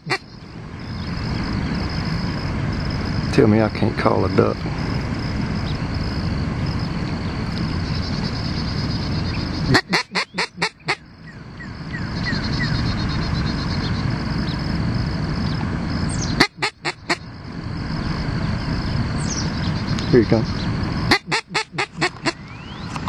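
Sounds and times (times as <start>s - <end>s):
duck call quacks: 0.0s - 0.2s, 9.7s - 11.0s, 16.4s - 17.2s, 21.1s - 22.4s.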